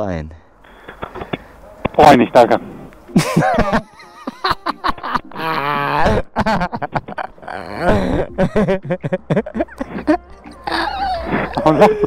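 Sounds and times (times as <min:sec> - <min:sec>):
man laughing loudly: 0:03.1 - 0:12.0.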